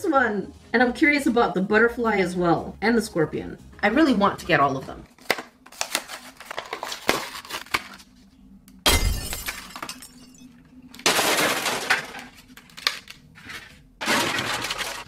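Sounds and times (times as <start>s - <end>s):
plastic packaging crackling: 5.1s - 8.2s, 11.3s - 15.0s.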